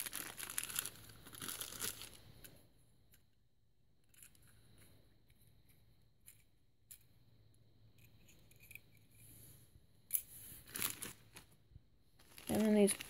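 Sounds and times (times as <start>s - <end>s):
plastic bag crinkle: 0.0s - 2.2s, 10.6s - 11.6s, 12.2s - 13.0s.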